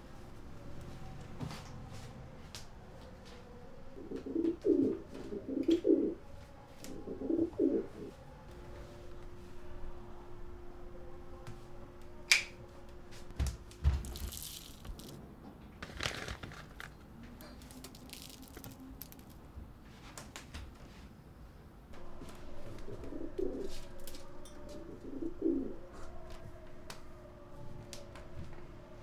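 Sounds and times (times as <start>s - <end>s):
faint steady hum: 0.0s - 20.2s
pigeon cooing: 3.8s - 9.0s, 22.0s - 29.0s.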